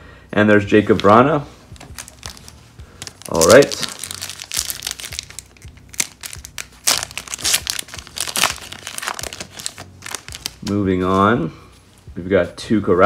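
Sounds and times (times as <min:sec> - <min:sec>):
foil wrapper tearing and crinkling: 0:01.8 - 0:10.8.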